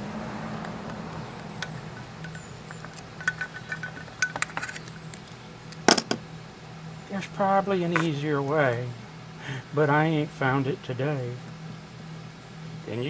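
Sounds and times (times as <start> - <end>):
metallic clicks and clinks: 1.5 - 6.0.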